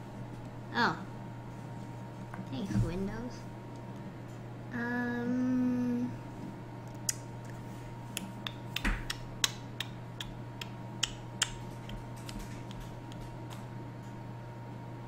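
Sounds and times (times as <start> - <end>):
faint hum: 0.0 - 15.0
sharp clicks and taps: 8.2 - 13.7.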